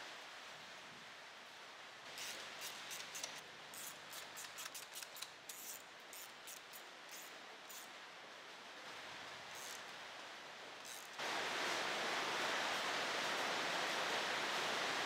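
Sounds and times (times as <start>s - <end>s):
metal nuts and washers clicking: 2.2s - 7.8s.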